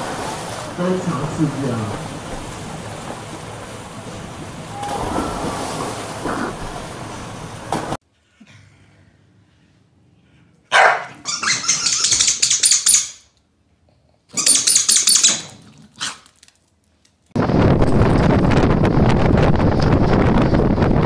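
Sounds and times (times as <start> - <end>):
dogs barking rapidly: 10.7 - 12.0.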